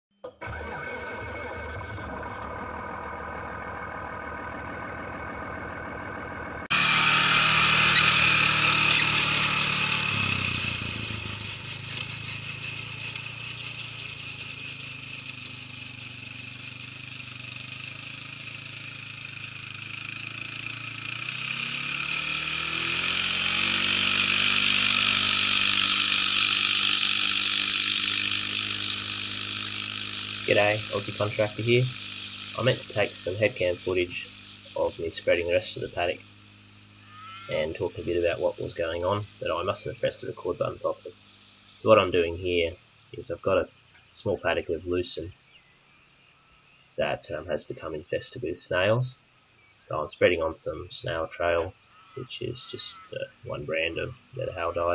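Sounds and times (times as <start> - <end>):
quad bike engine running: 0.2 - 54.9
steady hiss: 24.2 - 45.3.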